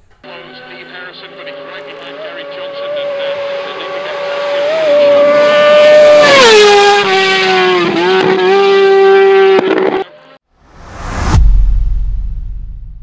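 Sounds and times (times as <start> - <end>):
racing motorcycle passing by: 0.5 - 10.4.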